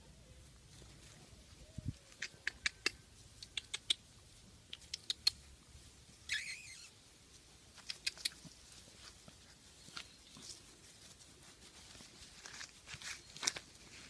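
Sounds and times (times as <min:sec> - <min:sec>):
puppy rustling through grass: 0:04.0 - 0:14.0.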